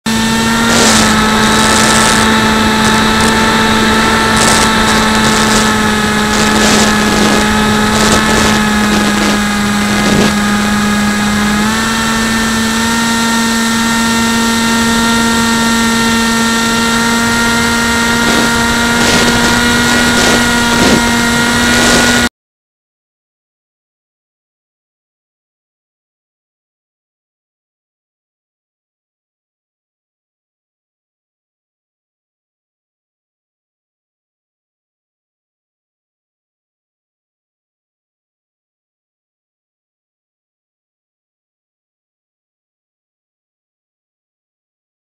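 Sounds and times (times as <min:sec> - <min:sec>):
electric motor high whine: 0:00.1 - 0:22.3.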